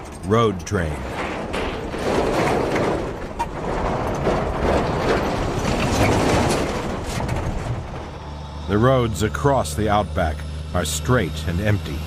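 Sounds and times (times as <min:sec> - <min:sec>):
clattering and knocks: 0:00.0 - 0:08.3
truck and tyre noise: 0:00.0 - 0:12.0.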